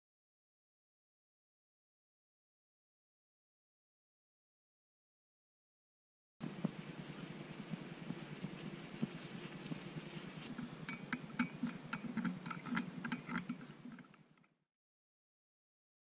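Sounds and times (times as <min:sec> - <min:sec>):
low steady hiss: 0:06.4 - 0:14.4.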